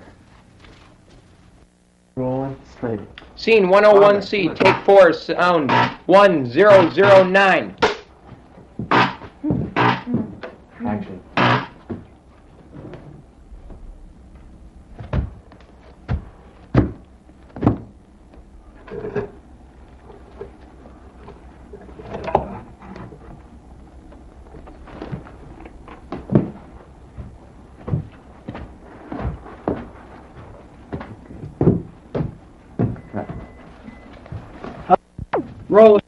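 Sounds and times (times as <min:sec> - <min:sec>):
low steady hum: 0:00.0 - 0:36.0
thumps and knocks: 0:05.7 - 0:10.6, 0:11.4 - 0:12.1, 0:15.0 - 0:18.0, 0:24.1 - 0:33.6.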